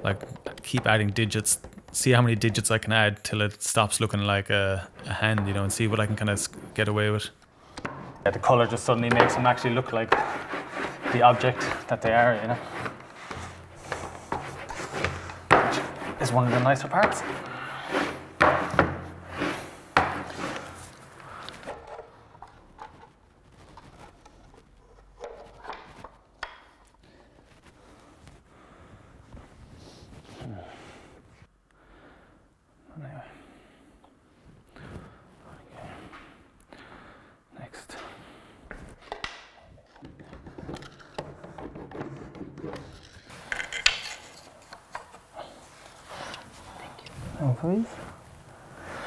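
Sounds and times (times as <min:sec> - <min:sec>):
wooden knocks: 0:07.7 - 0:20.7, 0:39.1 - 0:43.1
wood scraping on concrete: 0:07.8 - 0:26.6, 0:39.8 - 0:48.2.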